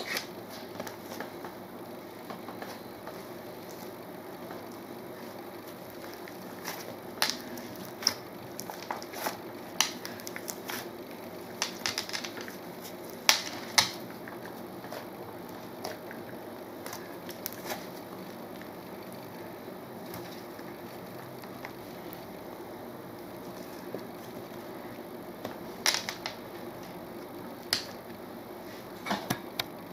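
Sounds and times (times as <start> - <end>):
sticky slime pops and crackles: 6.0 - 10.9, 11.6 - 14.2.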